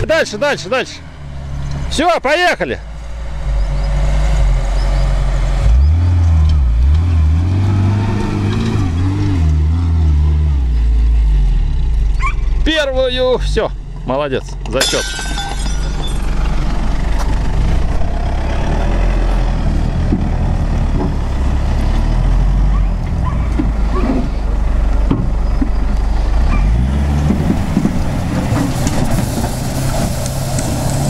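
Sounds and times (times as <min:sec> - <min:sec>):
tyres churning loose dirt: 0:12.4 - 0:31.0
truck engine running under load: 0:15.6 - 0:31.0.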